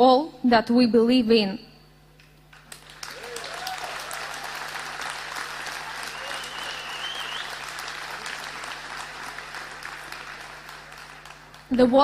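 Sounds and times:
audience applauding: 2.5 - 12.0
high whistle: 6.0 - 7.7.

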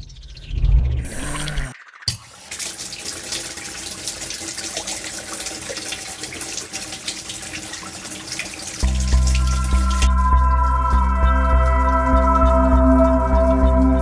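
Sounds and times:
low hum: 0.0 - 1.8, 8.8 - 14.0
tap water running into basin: 2.1 - 14.0.

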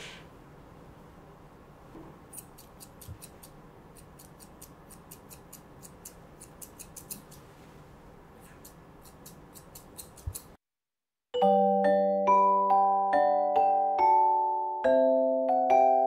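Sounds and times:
grooming shears snipping: 2.3 - 7.5, 8.4 - 10.6.

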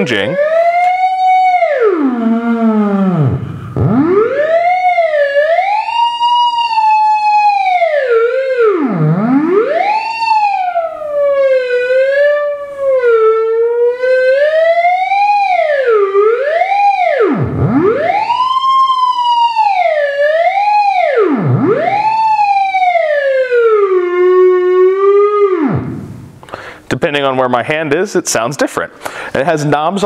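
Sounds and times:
theremin tone sliding: 0.0 - 15.5, 16.1 - 26.4.

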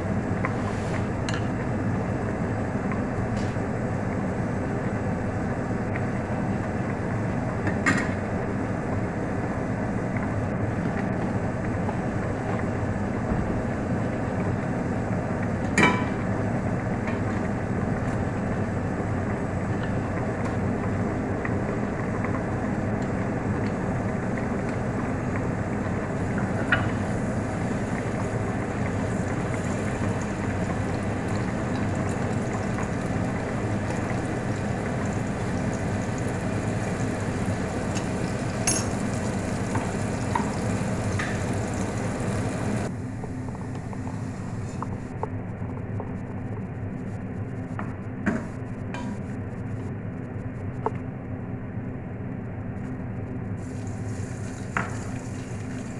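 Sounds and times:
cooking on a stove: 0.0 - 55.9
utensils clinking: 38.6 - 39.0.

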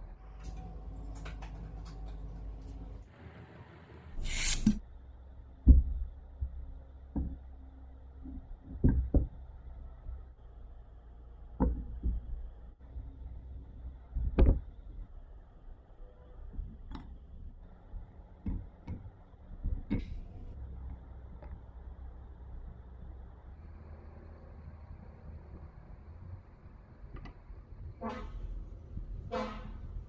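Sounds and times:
brief scraping rush: 4.2 - 4.8.

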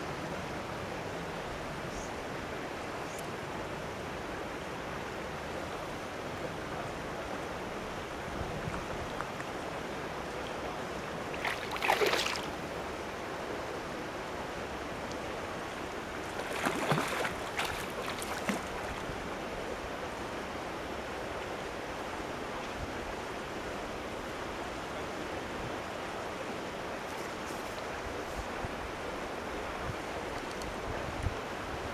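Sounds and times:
water at pond edge: 0.0 - 31.9
wind: 0.0 - 31.9
water splashing: 11.3 - 12.7, 16.2 - 19.2.

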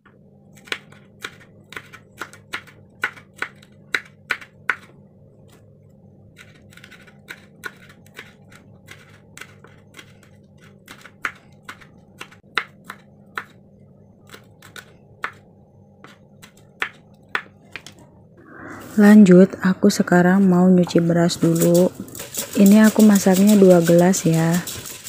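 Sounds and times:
low steady hum: 0.0 - 25.0
knife chopping on wooden board: 10.8 - 13.6, 14.3 - 15.4, 16.0 - 17.9.

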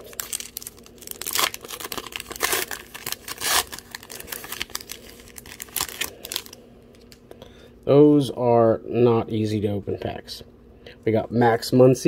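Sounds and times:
paper wrapper tearing and crinkling: 0.0 - 6.6.

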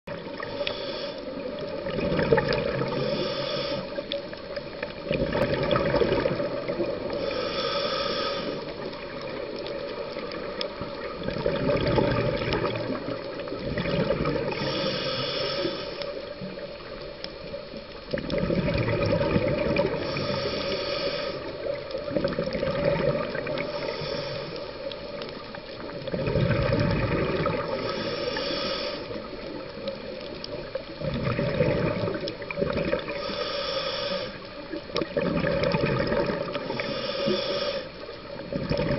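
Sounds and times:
regulator inhale hiss: 0.1 - 1.8, 2.7 - 5.1, 6.4 - 11.1, 12.6 - 17.6, 19.8 - 22.2, 23.0 - 26.0, 27.2 - 30.8, 32.0 - 34.8, 36.2 - 38.4
exhaled bubbles rushing: 1.5 - 3.1, 4.9 - 7.2, 8.8 - 14.7, 18.1 - 20.3, 21.7 - 23.8, 25.7 - 27.9, 29.6 - 33.2, 34.9 - 36.8, 38.4 - 38.9.

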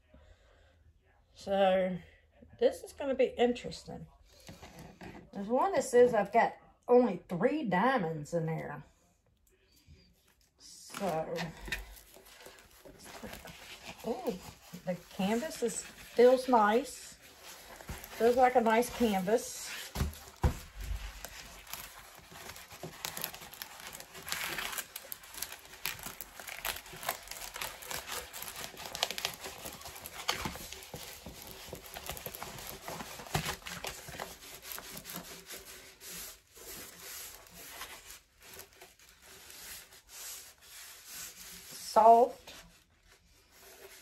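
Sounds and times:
canvas rustling and crinkling: 10.9 - 44.0.

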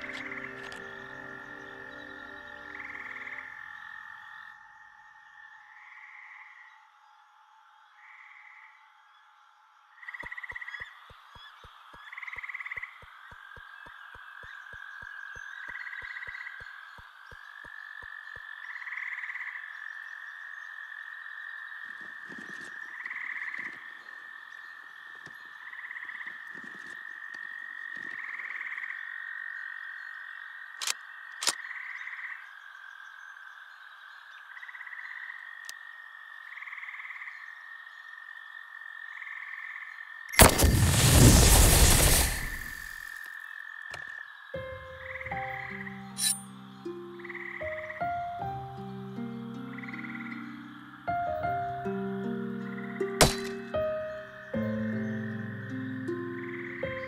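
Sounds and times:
sharp cracks: 40.4 - 43.1, 53.2 - 53.6.

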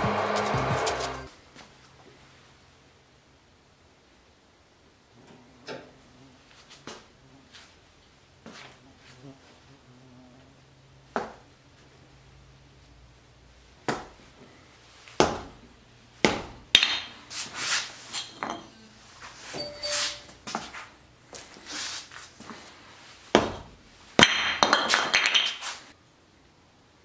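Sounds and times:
sneaker scuffs on tile: 0.0 - 1.7, 19.2 - 23.7.

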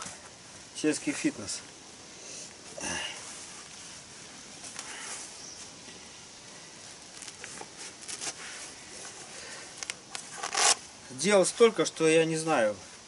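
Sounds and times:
faint outdoor ambience: 0.0 - 13.0
fabric belt rustling and rubbing: 6.9 - 10.8.

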